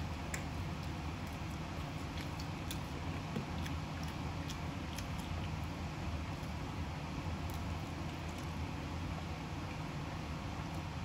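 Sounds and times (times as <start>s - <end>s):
low room hum: 0.0s - 11.0s
person chewing and lip smacking: 0.2s - 6.6s.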